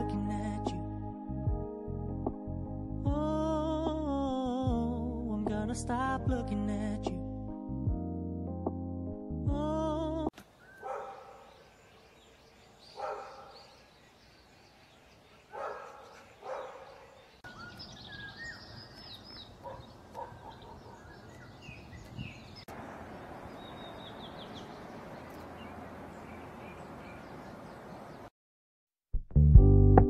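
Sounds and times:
small birds chirping: 0:10.4 - 0:28.3.

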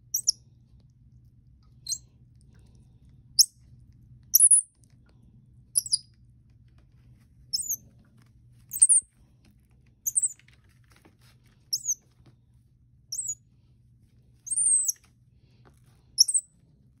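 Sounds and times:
baby monkey chirping peeps: 0:00.0 - 0:00.4, 0:01.8 - 0:02.0, 0:03.4 - 0:03.6, 0:04.3 - 0:04.7, 0:05.8 - 0:06.1, 0:07.5 - 0:07.8, 0:08.7 - 0:09.1, 0:10.0 - 0:10.4, 0:11.7 - 0:12.0, 0:13.1 - 0:13.4, 0:14.4 - 0:15.1, 0:16.2 - 0:16.5
faint low hum: 0:00.0 - 0:17.0.

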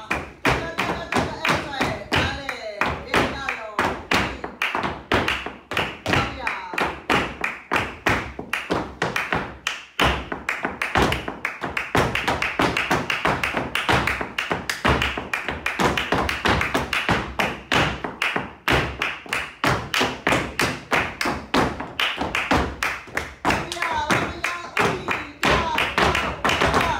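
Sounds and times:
flamenco shoes striking floor: 0:00.0 - 0:26.9.

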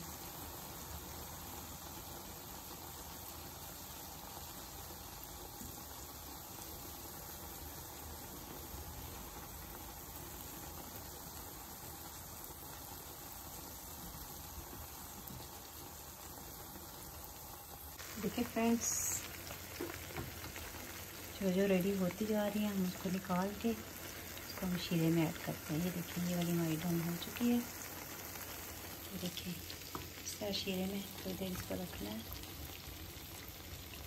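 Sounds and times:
oil sizzling and bubbling: 0:00.0 - 0:34.0.

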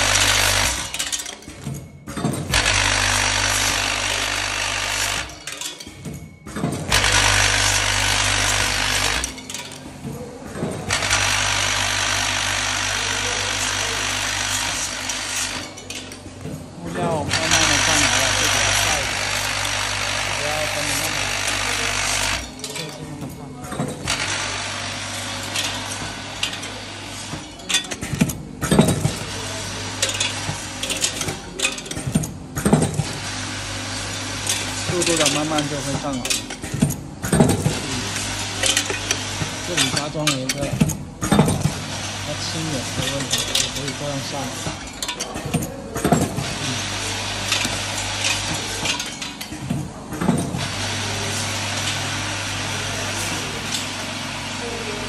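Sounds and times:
packing machine hum and rattle: 0:00.0 - 0:55.0
machine sharp clacks: 0:02.5 - 0:05.5, 0:06.9 - 0:09.4, 0:10.9 - 0:15.7, 0:17.3 - 0:22.5
plastic parts clattering: 0:47.4 - 0:49.6.

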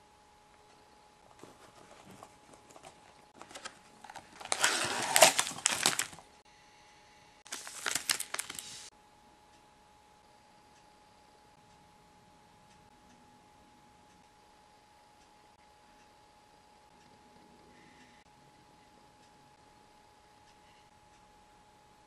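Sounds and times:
plastic packet crinkling: 0:02.1 - 0:06.3, 0:07.5 - 0:08.9.

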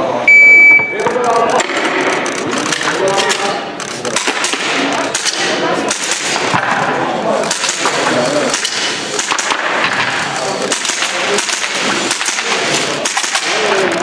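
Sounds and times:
voices talking in a hall: 0:00.0 - 0:14.0
airsoft pistol shots: 0:04.2 - 0:06.6, 0:10.7 - 0:13.8.

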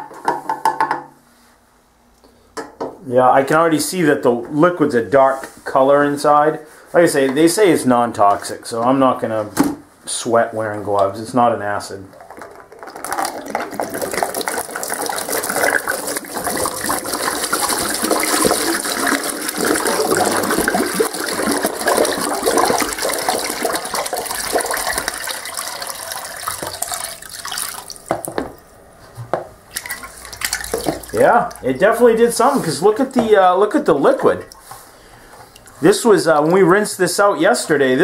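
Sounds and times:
liquid pouring into plastic pan: 0:11.9 - 0:28.4, 0:29.7 - 0:33.6.

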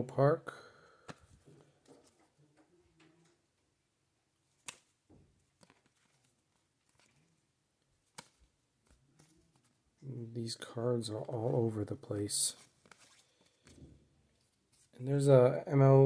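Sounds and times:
trading cards clicking and sliding: 0:01.1 - 0:02.2, 0:12.5 - 0:15.0.

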